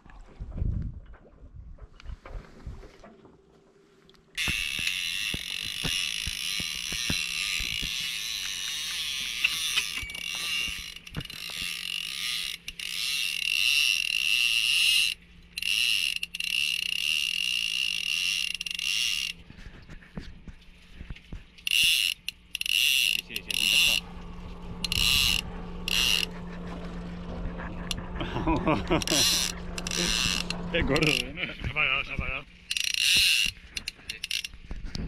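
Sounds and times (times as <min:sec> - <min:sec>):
fishing reel drag whining: 0:04.4 - 0:19.4, 0:21.6 - 0:28.0, 0:28.7 - 0:31.4, 0:32.4 - 0:34.7
reel ratchet clicks: 0:04.4 - 0:19.4, 0:21.6 - 0:24.0, 0:24.8 - 0:26.3, 0:29.0 - 0:31.2, 0:32.6 - 0:34.7.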